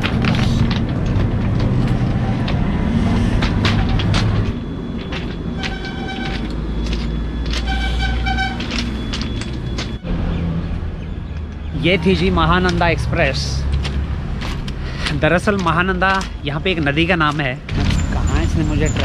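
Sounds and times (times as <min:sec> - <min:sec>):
train horn blasts: 0:05.6 - 0:06.5, 0:07.6 - 0:08.8
knocks and crunches: 0:13.6 - 0:18.3.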